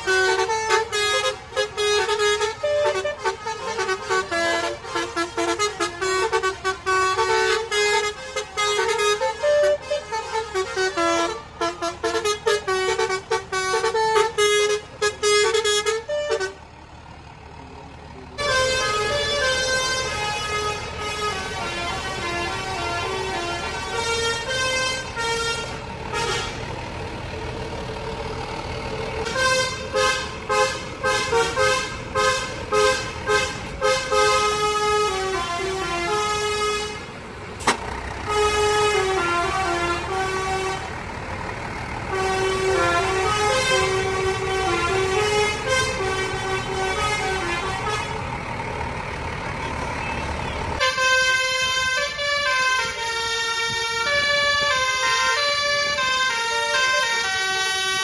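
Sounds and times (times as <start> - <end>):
multi-tone bus horn playing tunes: 0.0 - 16.7, 18.3 - 28.3, 29.0 - 41.2, 42.0 - 58.0
bus engine: 0.0 - 58.0.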